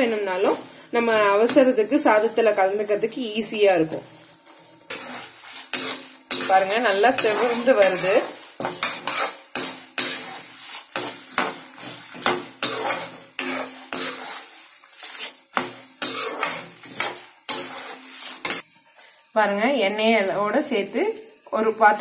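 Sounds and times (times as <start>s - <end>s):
oil sizzling faintly: 0.0s - 22.0s
steel ladle scraping iron pan: 4.4s - 18.6s.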